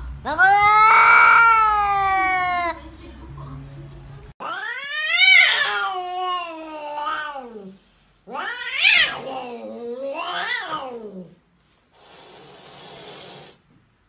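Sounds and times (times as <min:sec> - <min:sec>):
cat yowling: 0:00.3 - 0:02.8, 0:04.4 - 0:11.3.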